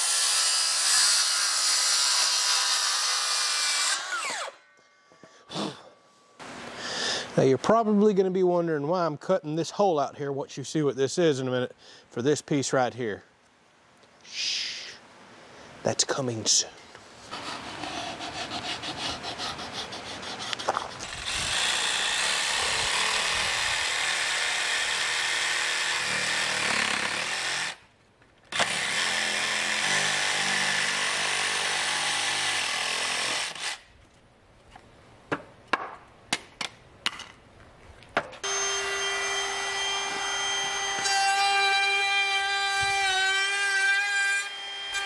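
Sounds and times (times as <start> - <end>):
jigsaw cutting wood: 0.0 - 4.6, 17.3 - 27.8, 28.5 - 33.8
power tool motor humming: 38.4 - 43.6.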